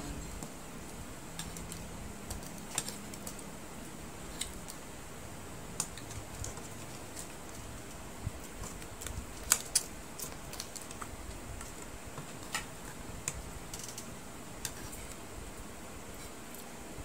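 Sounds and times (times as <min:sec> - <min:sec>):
steady background hiss: 0:00.0 - 0:17.0
crab shells cracking: 0:08.4 - 0:14.8.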